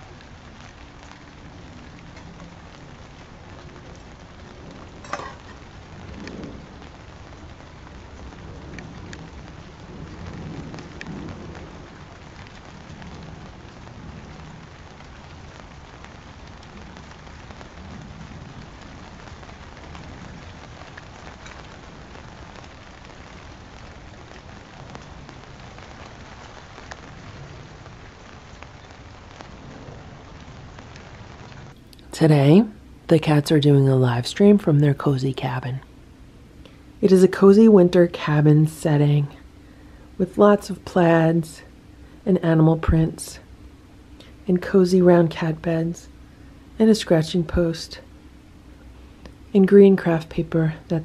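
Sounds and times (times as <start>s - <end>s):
rain falling on patio: 0.0s - 51.0s.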